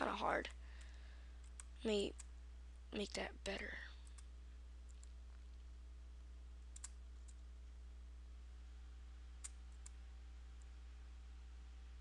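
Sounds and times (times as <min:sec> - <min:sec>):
faint low hum: 0:00.0 - 0:12.0
computer mouse clicking: 0:00.5 - 0:02.3, 0:04.0 - 0:04.3, 0:04.9 - 0:05.2, 0:06.7 - 0:07.4, 0:09.4 - 0:10.0.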